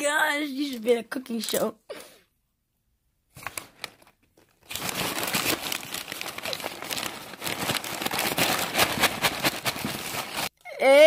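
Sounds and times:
plastic bag crinkling: 3.4s - 10.5s.

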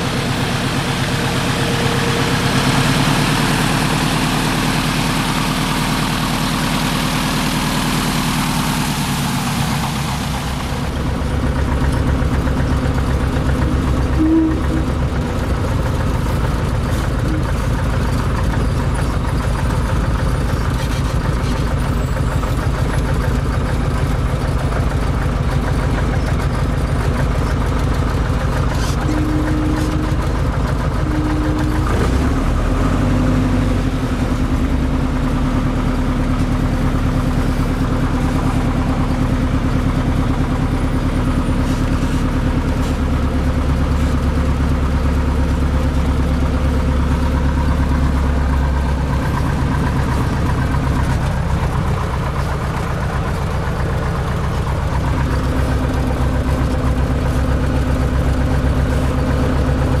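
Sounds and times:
short steady tones: 14.1s - 15.1s, 29.0s - 32.3s.

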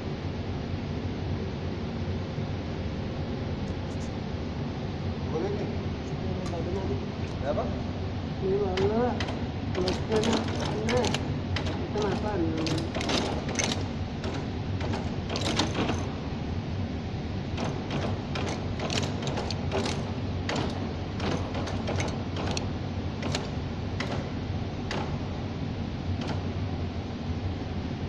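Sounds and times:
packing machine humming: 6.3s - 27.2s
machine cams clacking: 8.6s - 16.2s, 17.5s - 25.3s, 26.2s - 26.6s.

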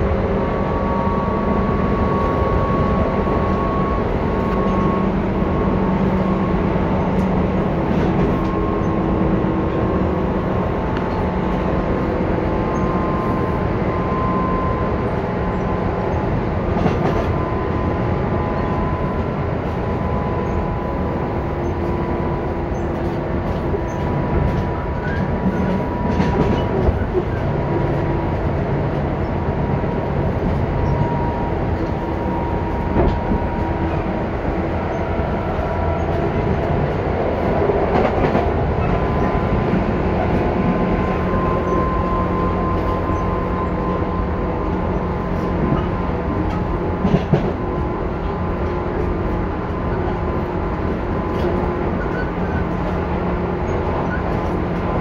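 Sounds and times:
train motor and gear whine: 0.0s - 55.0s
train wheels rumbling on rail: 0.0s - 55.0s
rail-joint clicks: 4.4s - 6.3s, 7.0s - 9.9s, 15.6s - 17.4s, 21.6s - 29.3s, 30.0s - 44.0s, 44.7s - 55.0s.

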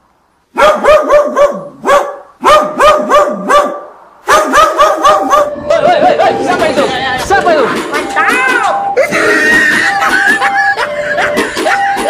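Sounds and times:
dog barking rapidly: 0.5s - 5.6s.

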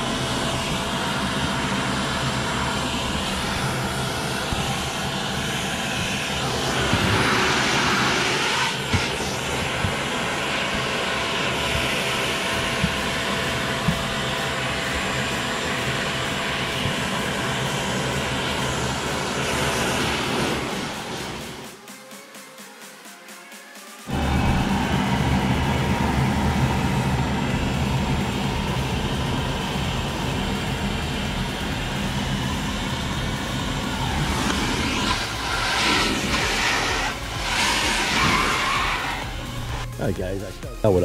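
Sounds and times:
motor droning hum: 0.0s - 21.7s, 24.1s - 40.0s
brush dragged over upholstery: 34.1s - 39.8s.

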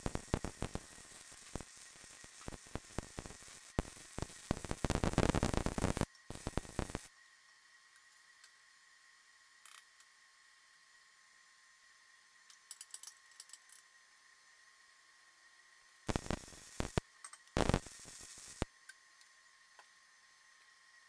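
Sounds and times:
welding arc crackling: 0.0s - 7.1s, 16.1s - 18.7s
faint steady whine: 0.0s - 21.0s.

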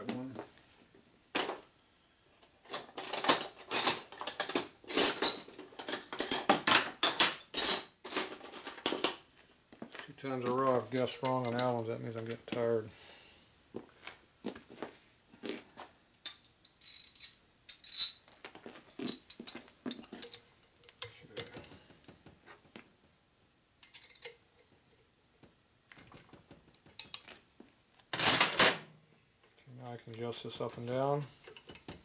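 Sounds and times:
metal tools clinking on engine: 10.4s - 11.8s, 19.0s - 21.8s, 23.8s - 24.7s.

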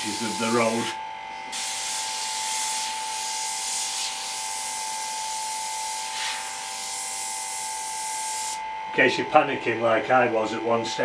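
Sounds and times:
airbrush hissing: 0.0s - 0.9s, 1.5s - 7.3s, 8.1s - 8.6s.

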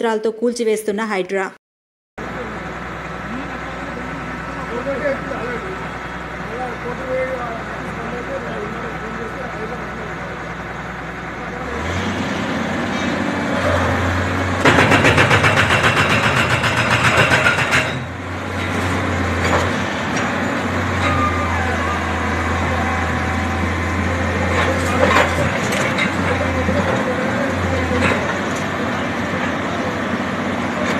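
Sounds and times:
excavator diesel engine running: 2.2s - 30.9s
loud fast rattling: 14.6s - 18.1s.

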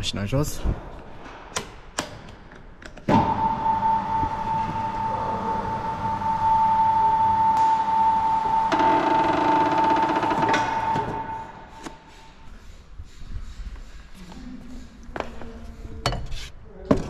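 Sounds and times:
lower tone: 3.2s - 9.0s
electric motor whining: 3.2s - 11.4s.

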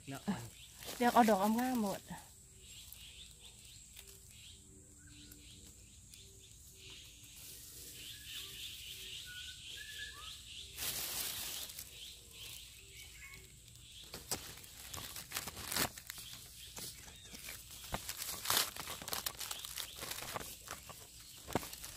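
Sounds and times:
birds chirping: 0.0s - 21.9s
rustling and crackling: 0.3s - 4.4s, 10.7s - 21.9s.

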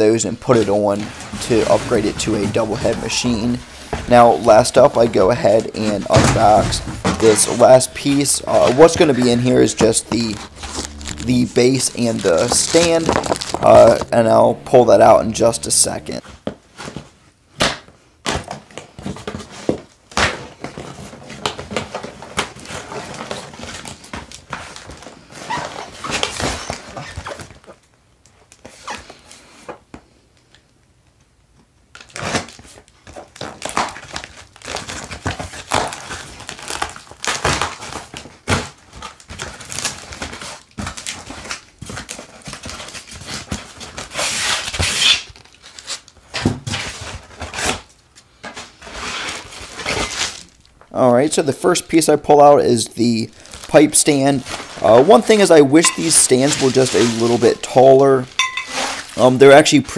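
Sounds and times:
foam and cardboard rustling: 0.4s - 17.2s, 32.2s - 50.6s, 53.0s - 59.9s
cardboard flaps scraping and rustling: 0.5s - 17.2s, 53.2s - 59.9s.

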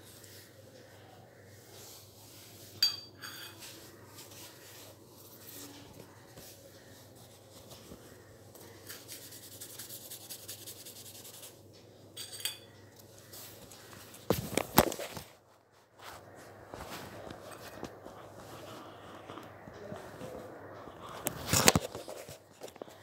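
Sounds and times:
steel bowl clinking on floor: 2.8s - 3.6s, 12.2s - 12.7s.

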